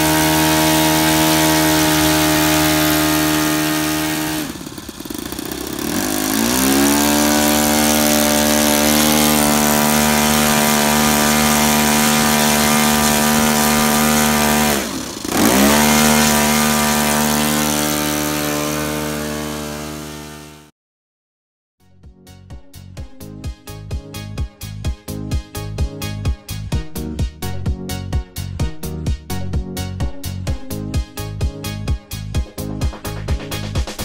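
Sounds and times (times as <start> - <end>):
model plane engine running: 0.0 - 20.7.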